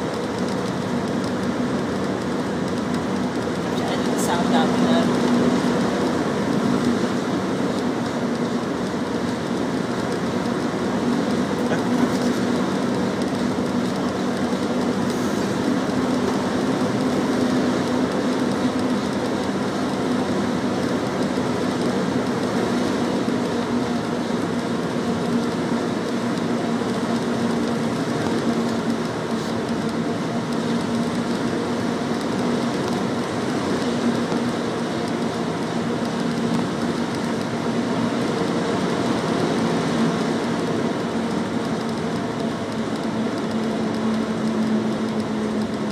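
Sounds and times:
bus engine drone: 0.0s - 45.9s.

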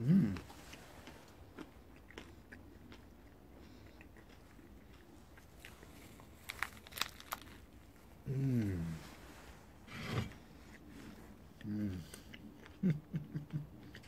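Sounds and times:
person humming: 0.0s - 0.5s, 8.2s - 9.1s, 11.6s - 14.0s
crunching and chewing: 0.0s - 14.0s.

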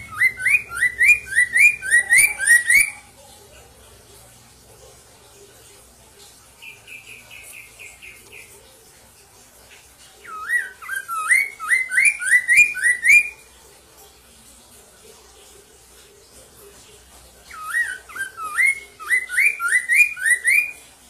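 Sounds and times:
bird singing high notes: 0.0s - 3.1s.

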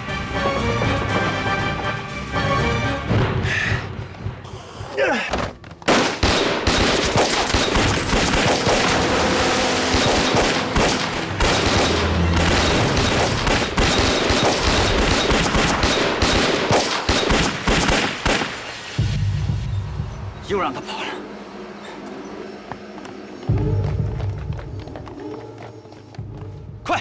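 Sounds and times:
rapid gunfire: 5.9s - 18.7s.

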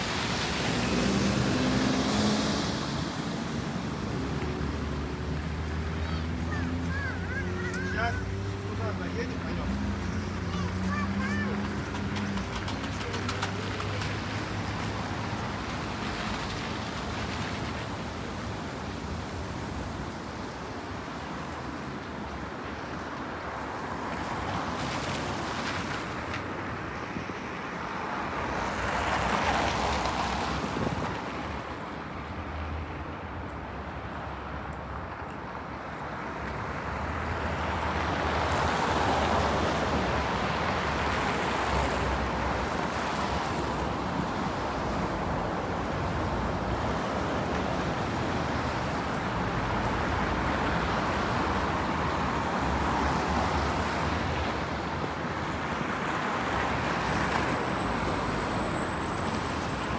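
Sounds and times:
cars passing: 0.0s - 59.9s.

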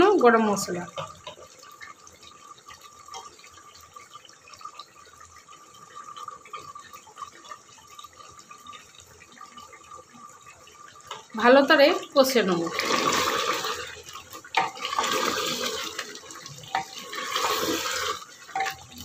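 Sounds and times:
curry bubbling and sizzling: 0.0s - 19.0s.

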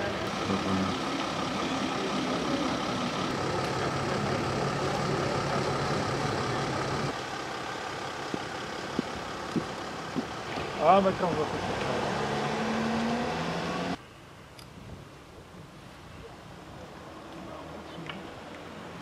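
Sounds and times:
vehicle engine idling: 0.0s - 11.9s.

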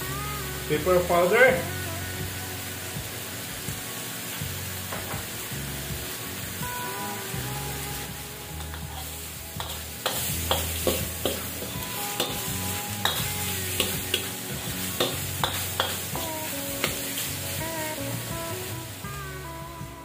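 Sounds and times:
frying sizzle: 0.0s - 20.0s
spatula scraping a wok: 7.9s - 18.3s
spatula clanking against pan: 8.6s - 17.0s.

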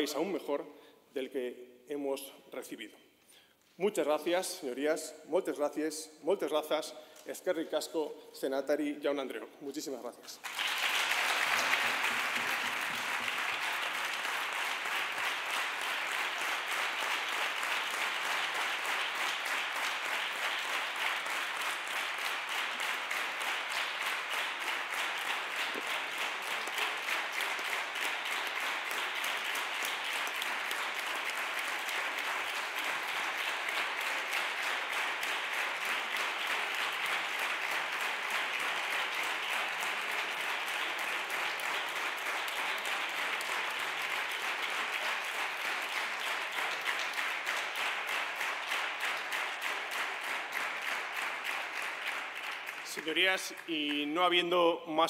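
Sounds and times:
crowd clapping: 10.4s - 54.2s.

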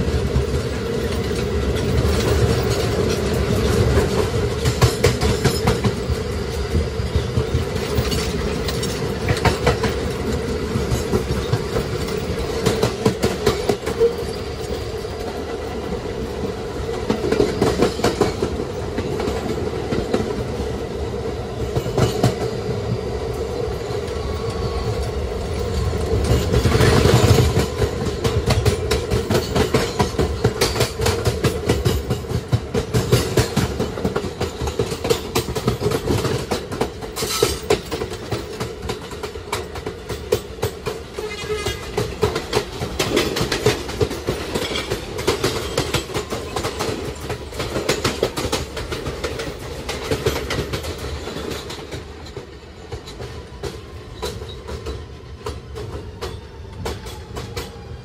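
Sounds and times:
subway wheels clicking over rail: 0.0s - 16.2s, 23.9s - 58.0s.

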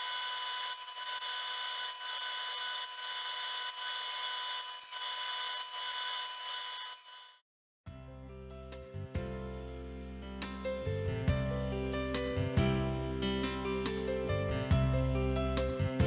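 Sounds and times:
table saw whining: 0.0s - 7.4s.

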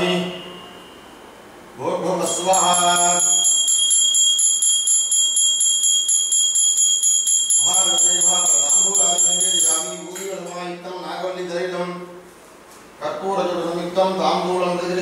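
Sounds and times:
man chanting: 0.0s - 0.5s, 1.8s - 3.4s, 7.6s - 12.1s
hand bell ringing: 2.2s - 10.8s.

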